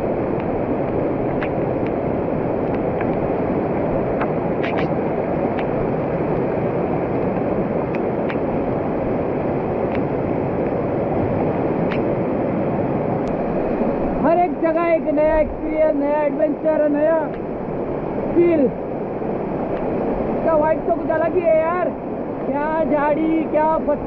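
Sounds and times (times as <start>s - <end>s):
stream rushing down rocks: 0.0s - 24.0s
faint clicks: 11.8s - 12.1s.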